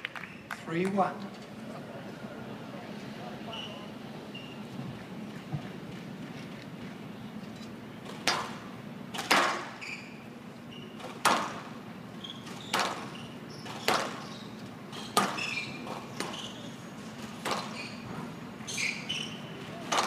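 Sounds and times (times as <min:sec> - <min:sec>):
shoe squeaks on court floor: 0:03.5 - 0:04.7, 0:09.6 - 0:11.1, 0:12.2 - 0:19.7
squash ball hitting racquets and walls: 0:08.1 - 0:09.8, 0:10.9 - 0:20.0.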